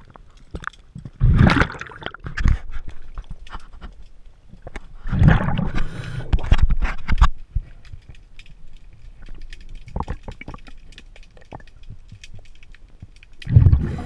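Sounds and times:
faint clicks and ticks: 0:00.0 - 0:01.2, 0:05.7 - 0:13.6
underwater breath bubbles: 0:05.0 - 0:06.6, 0:13.5 - 0:14.0.

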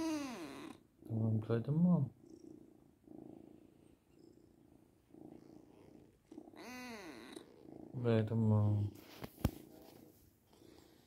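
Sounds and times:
kitten purring: 0:00.0 - 0:11.0.

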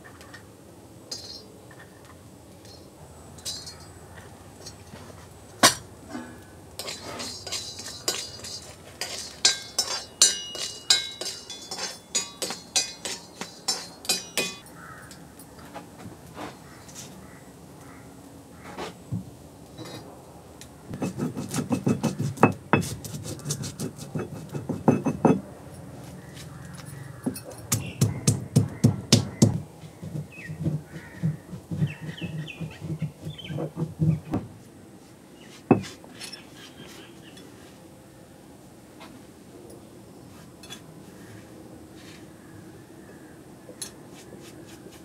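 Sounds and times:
stone pestle pounding in mortar: 0:21.0 - 0:25.4, 0:27.2 - 0:34.4.

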